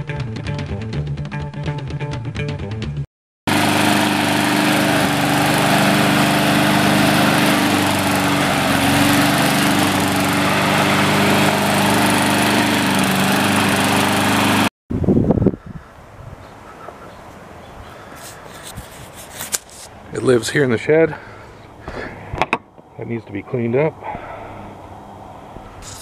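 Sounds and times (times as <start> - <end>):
lawn mower engine running: 3.5 - 14.7.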